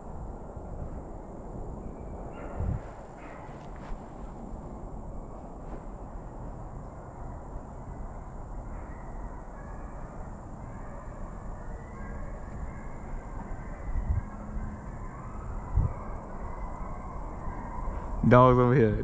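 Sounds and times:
wind gusts thumping: 0.0s - 7.8s
wind rumbling on microphone: 0.0s - 19.0s.

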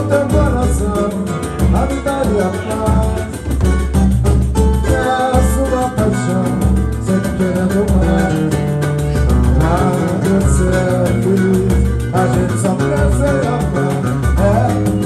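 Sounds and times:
guitar strumming: 0.0s - 15.0s
hand drums beating: 0.0s - 15.0s
people singing: 4.9s - 8.4s.

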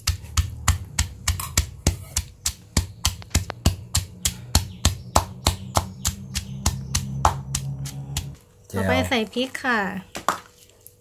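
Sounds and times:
stone pestle pounding in mortar: 0.0s - 8.4s.

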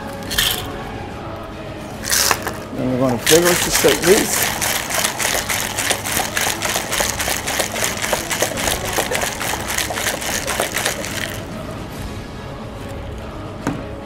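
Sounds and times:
ice rattling in cocktail shaker: 0.2s - 0.8s, 2.0s - 11.5s.

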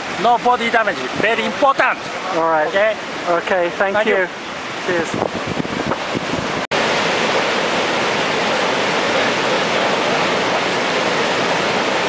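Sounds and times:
heavy surf breaking: 0.0s - 12.0s.

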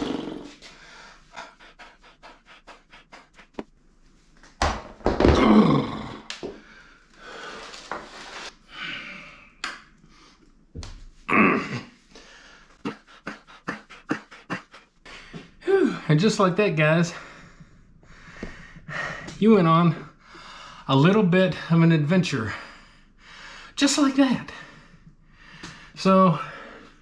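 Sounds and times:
man panting and grunting: 0.0s - 3.6s, 5.3s - 7.4s, 11.3s - 20.9s, 24.5s - 27.0s.

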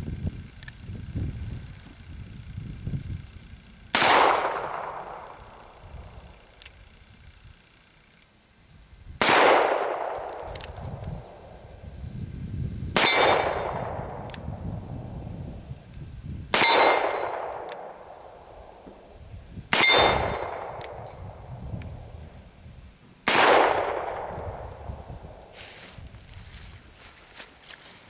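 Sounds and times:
metallic clang of steel target: 13.0s - 14.0s, 16.6s - 17.9s, 19.7s - 21.0s
revolver shots with echo: 23.3s - 24.7s.

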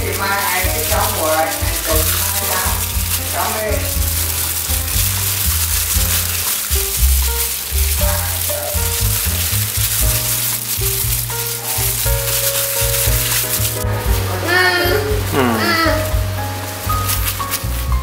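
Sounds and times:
background music: 0.0s - 18.0s
plastic wrap crinkling: 0.0s - 18.0s.

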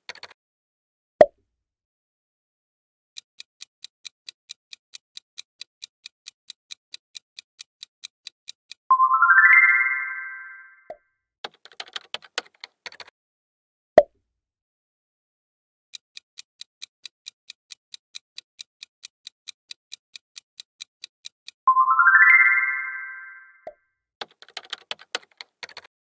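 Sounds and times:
clock ticking: 0.0s - 0.3s, 3.2s - 8.9s, 15.9s - 21.7s
keyboard-like clicks: 0.0s - 0.4s, 11.4s - 13.1s, 24.2s - 25.9s.

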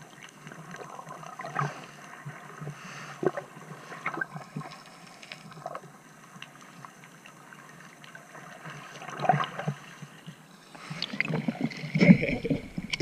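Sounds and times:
muffled underwater ambience: 0.0s - 13.0s
small clicks and crackles: 0.0s - 13.0s
bubbling: 11.0s - 13.0s.

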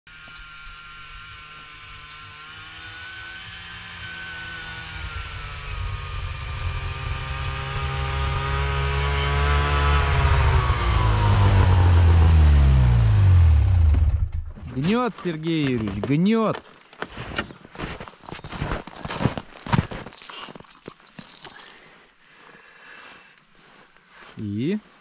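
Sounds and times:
faint high bell jingles: 0.1s - 3.5s, 18.2s - 22.0s
snowmobile engine approaching: 0.1s - 13.9s.

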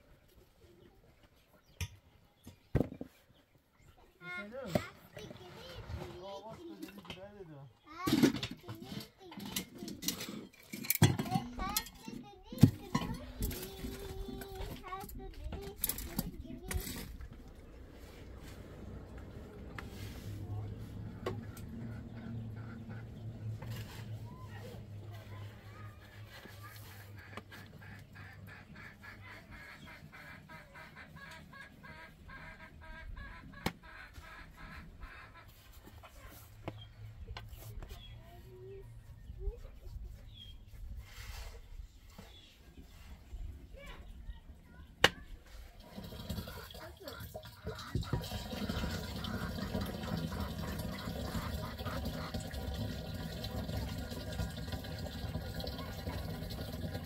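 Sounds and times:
hen clucking: 18.4s - 24.8s, 25.7s - 36.8s, 45.9s - 56.9s
water running into plastic container: 45.8s - 57.0s.

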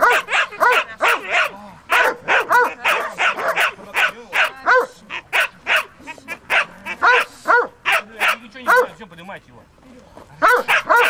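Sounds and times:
dog barking: 0.0s - 5.9s, 6.5s - 9.0s, 10.4s - 11.0s.

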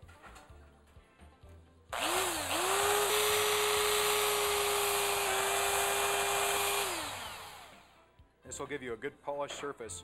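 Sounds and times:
electric drill motor whine: 2.0s - 8.0s.

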